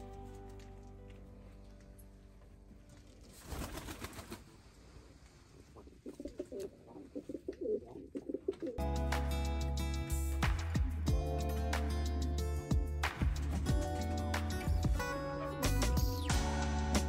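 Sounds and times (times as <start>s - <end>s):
pigeons cooing: 5.8s - 8.8s
guitar music: 8.8s - 17.0s.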